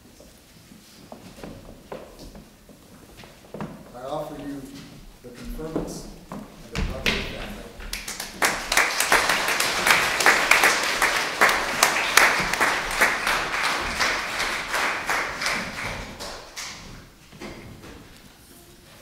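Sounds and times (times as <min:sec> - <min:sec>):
congregation applauding: 0:06.8 - 0:17.2.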